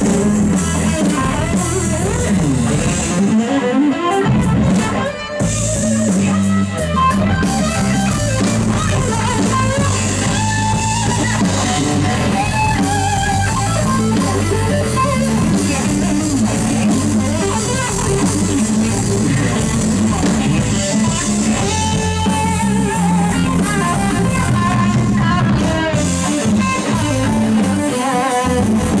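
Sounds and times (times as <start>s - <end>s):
drum kit: 0.0s - 29.0s
electric bass: 0.0s - 29.0s
electric guitar: 0.0s - 29.0s.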